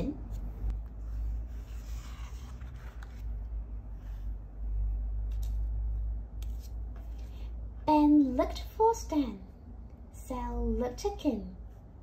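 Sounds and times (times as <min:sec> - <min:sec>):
book page turning: 0:00.3 - 0:03.6, 0:05.2 - 0:05.8, 0:06.4 - 0:07.4.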